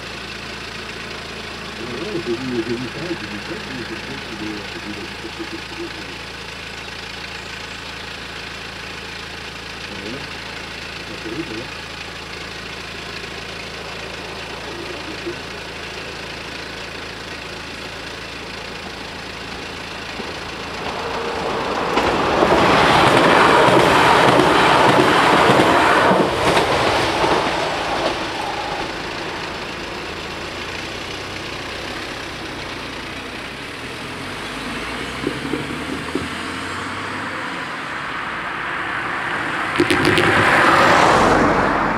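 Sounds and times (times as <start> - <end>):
car driving over crossing: 0.0 - 41.9
train passing: 20.7 - 30.1.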